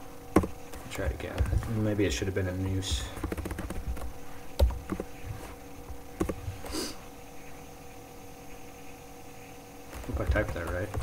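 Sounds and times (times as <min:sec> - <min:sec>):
faint steady hum: 0:00.0 - 0:11.0
keyboard keystrokes: 0:03.2 - 0:05.0.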